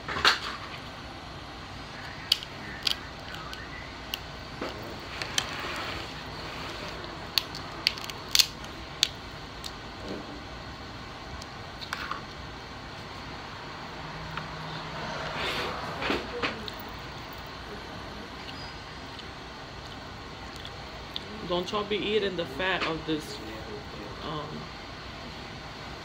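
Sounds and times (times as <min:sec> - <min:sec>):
crab shell clicking and cracking: 0:02.0 - 0:05.5, 0:06.9 - 0:09.8.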